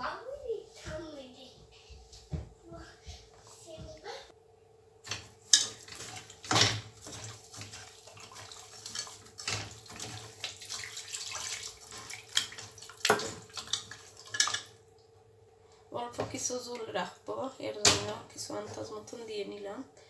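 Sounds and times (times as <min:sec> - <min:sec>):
wet squelching and scraping: 0:05.1 - 0:14.7
clatters against metal pot: 0:12.4 - 0:14.7.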